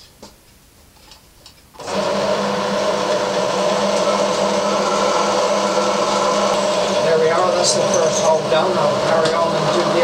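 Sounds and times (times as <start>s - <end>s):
pillar drill boring metal: 3.1s - 10.0s.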